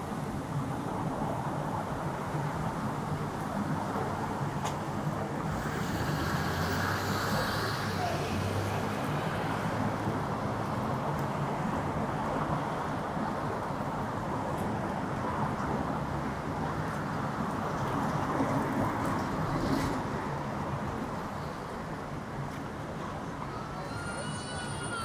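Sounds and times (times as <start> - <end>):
city street traffic: 0.0 - 25.0
motor vehicle passing by: 5.4 - 10.1.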